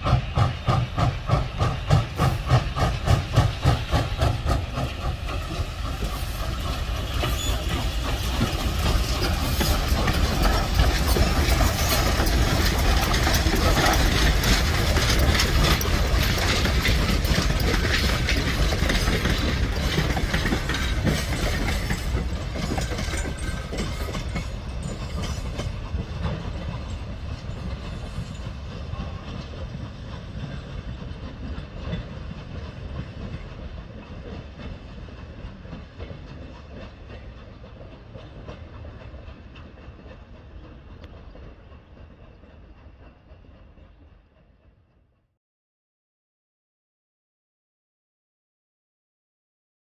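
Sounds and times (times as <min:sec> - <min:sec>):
steam locomotive exhaust beat: 0:00.0 - 0:44.9.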